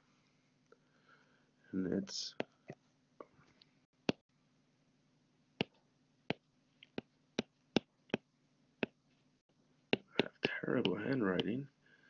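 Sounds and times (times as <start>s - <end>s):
stylus tapping on glass screen: 9.9s - 11.6s.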